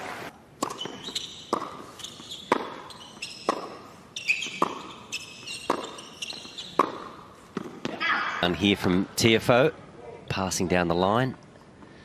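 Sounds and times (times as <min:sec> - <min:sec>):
tennis ball bouncing: 0:00.6 - 0:08.0
tennis racket hitting ball: 0:00.6 - 0:08.0.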